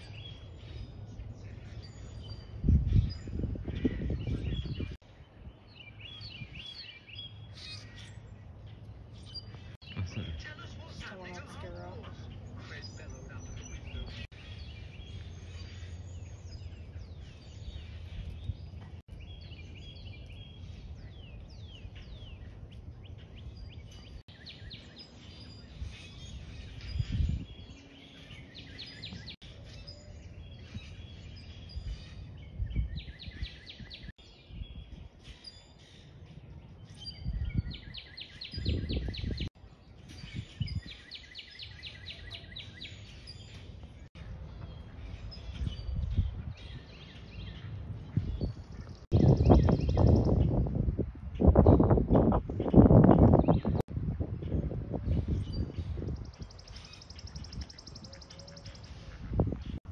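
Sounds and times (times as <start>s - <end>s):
songbirds chirping and trilling: 0.0s - 59.9s
low thuds: 9.5s - 10.8s.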